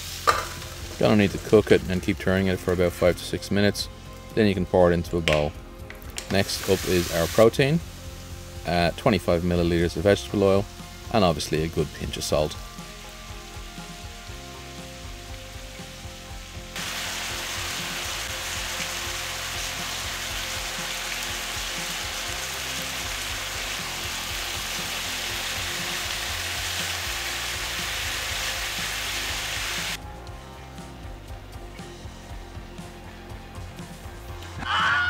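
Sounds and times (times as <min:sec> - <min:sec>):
chicken sizzling in hot oil: 0:00.0 - 0:03.1, 0:06.2 - 0:30.0.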